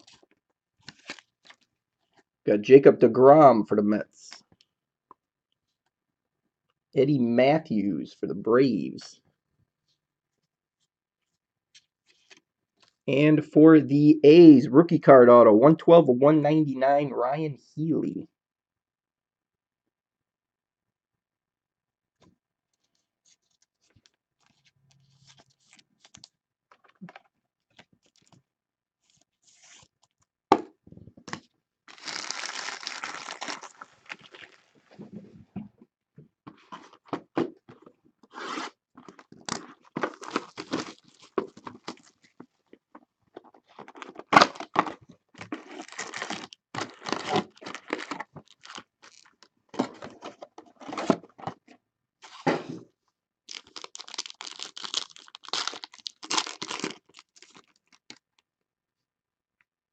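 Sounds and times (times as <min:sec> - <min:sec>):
plastic wrappers crinkling: 0:00.0 - 0:02.2, 0:31.9 - 0:35.0, 0:39.0 - 0:42.4, 0:43.4 - 0:49.5, 0:53.5 - 0:58.4
cards and packaging clicking: 0:00.8 - 0:01.7, 0:53.5 - 0:58.3
wrapper tearing: 0:00.8 - 0:01.7, 0:31.9 - 0:34.9, 0:38.4 - 0:42.2, 0:43.7 - 0:49.4, 0:53.5 - 0:58.4.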